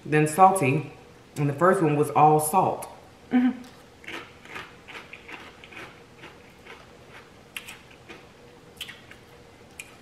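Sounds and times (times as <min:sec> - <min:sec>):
potato chips crunching: 0:03.6 - 0:10.0.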